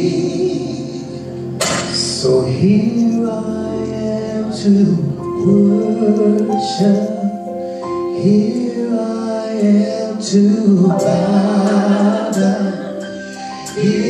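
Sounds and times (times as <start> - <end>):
sustained chords: 10.7 - 14.0
person singing long notes: 10.8 - 13.0.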